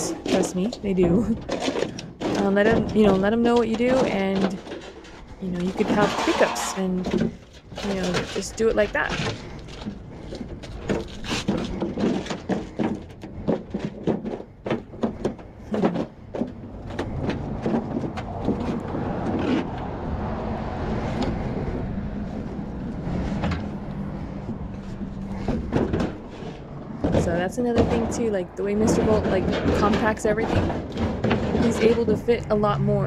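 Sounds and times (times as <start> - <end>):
metallic clanks: 0.0 - 19.8
metal scraping and crumpling: 0.0 - 20.1, 22.2 - 33.0.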